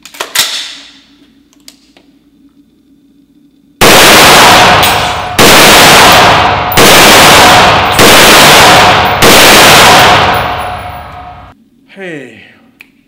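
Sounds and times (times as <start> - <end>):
rifle firing single shots: 3.8 - 10.8.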